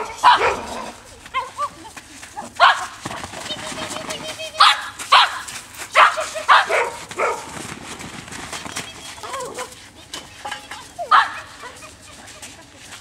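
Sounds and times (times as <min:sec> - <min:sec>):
small dog yapping: 0:00.0 - 0:01.7, 0:02.6 - 0:03.0, 0:04.6 - 0:07.5, 0:09.2 - 0:09.8, 0:11.0 - 0:11.9.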